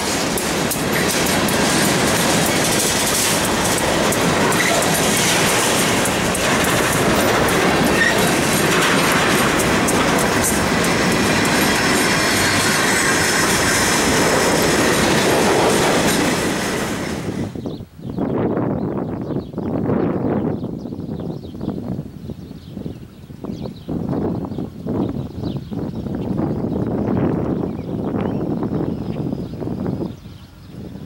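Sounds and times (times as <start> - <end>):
railcars rolling past: 0.0 - 17.8.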